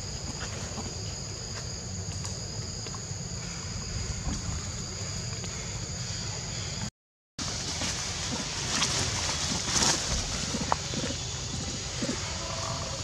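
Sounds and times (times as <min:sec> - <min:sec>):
insects droning: 0:00.0 - 0:13.0
wind rumble on microphone: 0:03.7 - 0:05.5.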